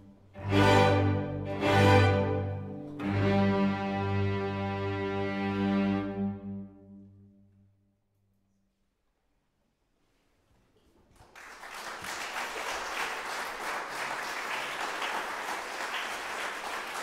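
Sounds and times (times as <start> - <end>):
audience applause: 11.2 - 17.0.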